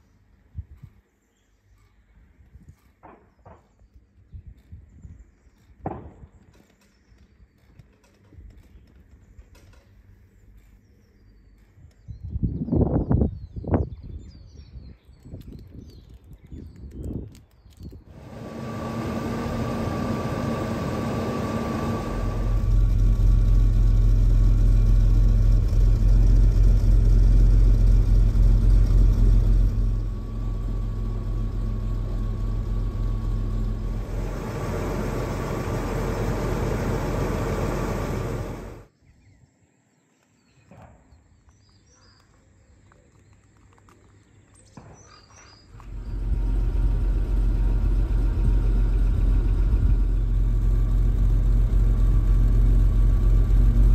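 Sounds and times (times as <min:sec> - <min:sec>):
faint birdsong: 0:00.0 - 0:22.8, 0:23.4 - 0:51.0
car engine idling: 0:18.1 - 0:38.9, 0:45.8 - 0:53.9.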